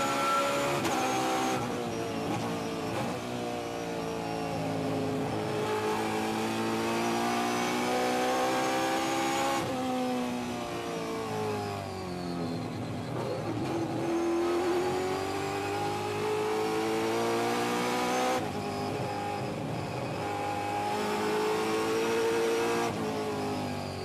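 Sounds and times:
race car engine accelerating: 0:04.7 - 0:09.8, 0:13.1 - 0:23.7.

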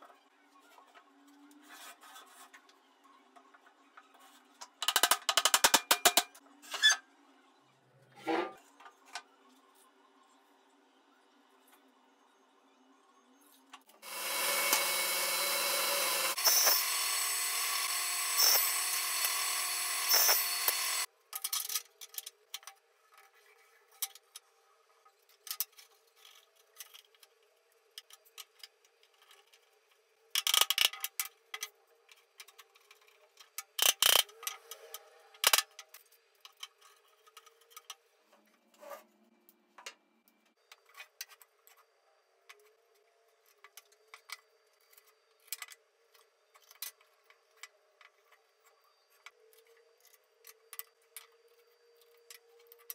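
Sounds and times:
table saw cutting wood: 0:14.0 - 0:21.1.

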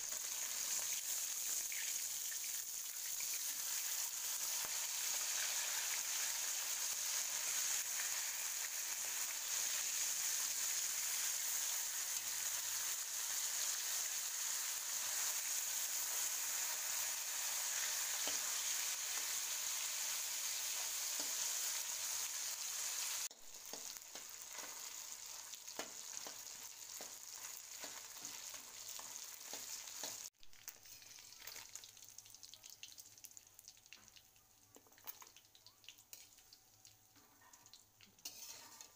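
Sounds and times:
fish frying in hot oil: 0:00.0 - 0:38.9
metal spatula scraping wok: 0:38.2 - 0:38.9.

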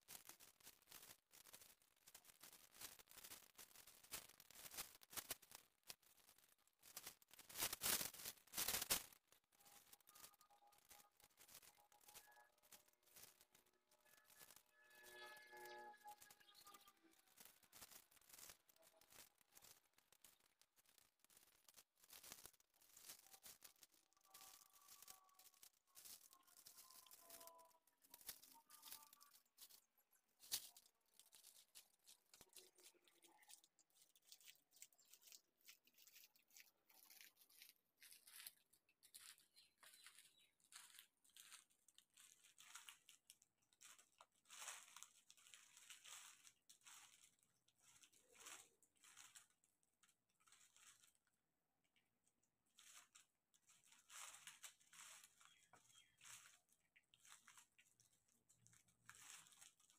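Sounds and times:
plastic film rustling: 0:00.0 - 0:59.9.

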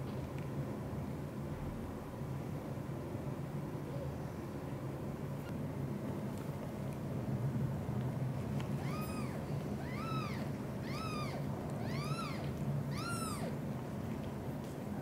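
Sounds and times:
kittens mewing: 0:08.8 - 0:13.6.

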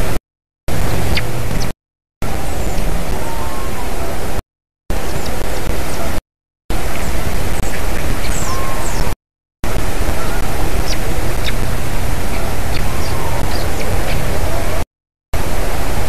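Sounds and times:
microphone hiss: 0:00.0 - 0:14.8, 0:15.4 - 0:16.0
small birds chirping: 0:00.7 - 0:01.7, 0:05.0 - 0:06.2, 0:06.8 - 0:09.2, 0:09.8 - 0:14.8.

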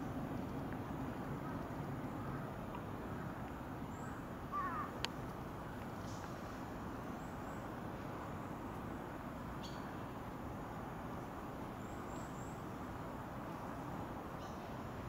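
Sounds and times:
distant traffic hum: 0:00.0 - 0:15.0
faint bird chirps: 0:03.9 - 0:05.0.

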